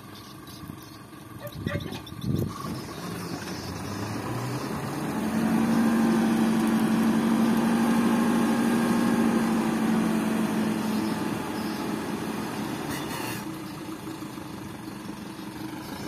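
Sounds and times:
truck diesel engine revving: 0.0 - 16.0.

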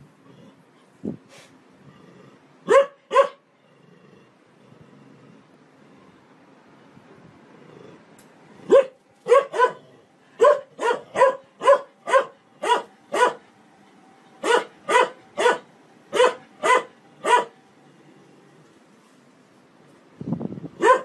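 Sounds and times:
dog barking: 2.6 - 3.4, 8.7 - 13.4, 14.4 - 17.6, 20.8 - 21.0.

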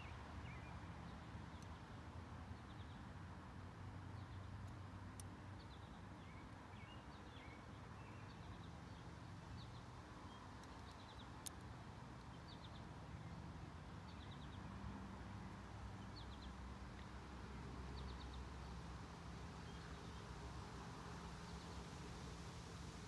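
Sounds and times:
small birds chirping: 4.1 - 14.8, 15.6 - 17.2.

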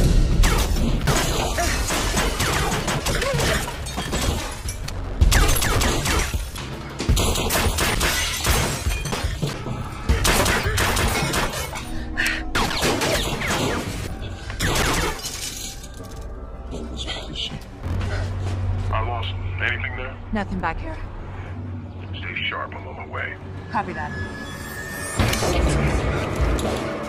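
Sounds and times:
film music score: 0.0 - 27.0
glass shattering: 3.0 - 4.9, 14.7 - 16.2.

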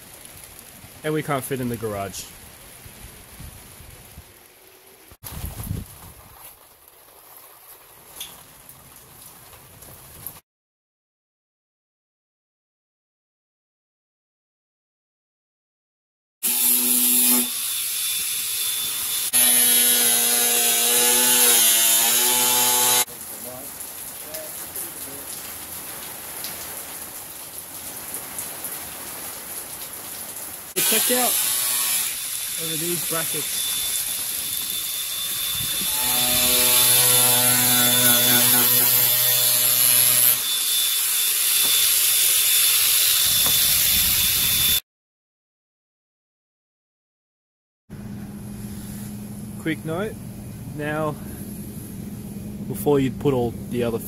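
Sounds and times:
angle grinder whining: 16.5 - 23.1, 30.8 - 44.8.

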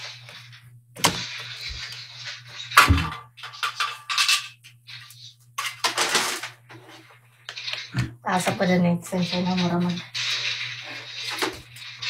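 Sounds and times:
objects rustling and knocking: 0.0 - 12.0
loud thud: 2.8 - 3.2.

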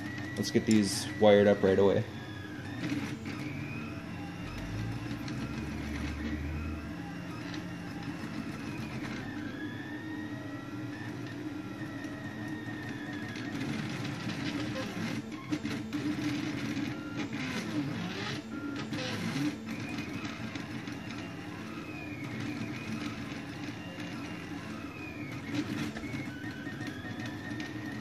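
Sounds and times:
steady low motor hum: 0.0 - 28.0.

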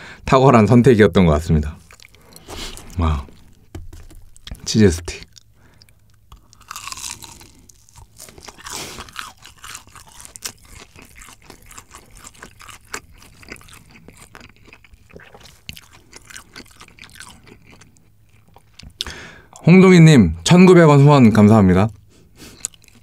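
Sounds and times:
cheese stick bite and crunching: 5.2 - 19.0.

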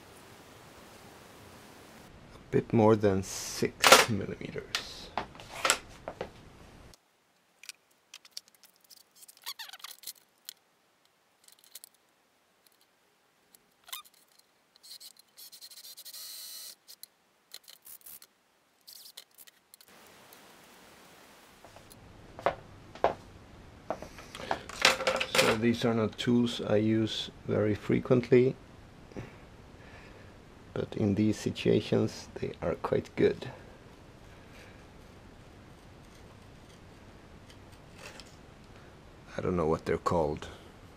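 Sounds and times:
hand tools clicking and knocking: 24.4 - 25.6.

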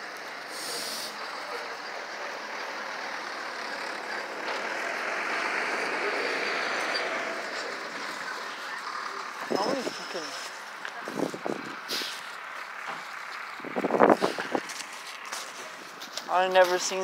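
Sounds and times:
fire truck engines running: 0.0 - 17.0
short high hiss: 0.5 - 1.2.

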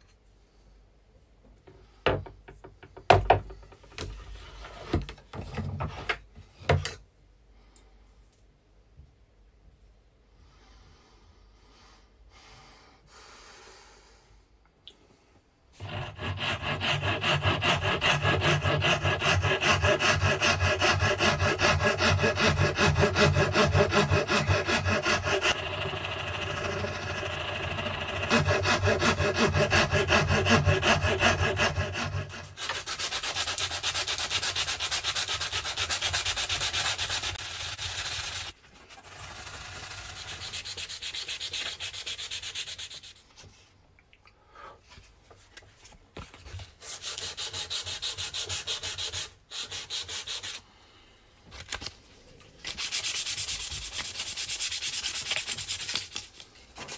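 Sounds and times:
file scraping wood: 15.8 - 43.2.

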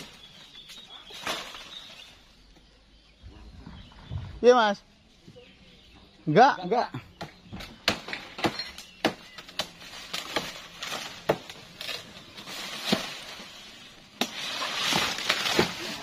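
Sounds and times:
branches knocking and snapping: 0.0 - 2.3, 7.2 - 16.0
leaves rustling: 0.0 - 2.5, 9.3 - 16.0.

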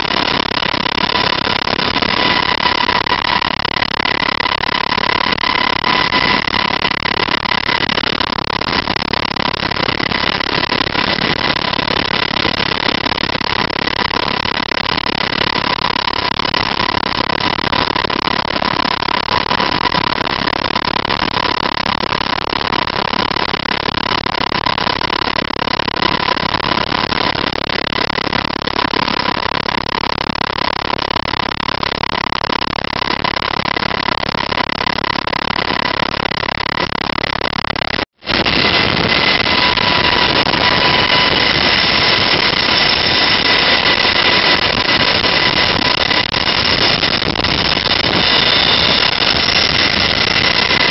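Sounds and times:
helicopter engine and rotor rush: 0.0 - 23.5, 26.0 - 28.0, 37.8 - 50.9
constant high whine: 0.0 - 50.9.

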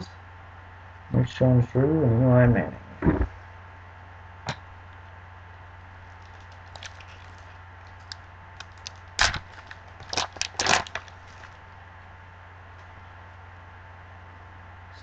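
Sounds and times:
foil wrapper crinkling and tearing: 6.1 - 11.6.

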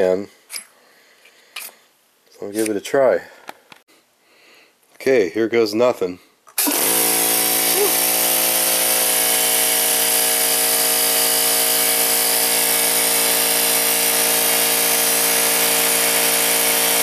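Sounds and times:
air compressor running: 6.6 - 17.0.

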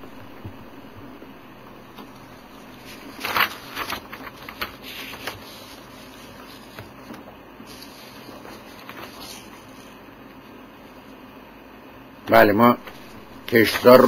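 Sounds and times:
faint steady hiss: 0.0 - 14.0
paper rustling and crackling: 2.0 - 10.0, 12.8 - 14.0.

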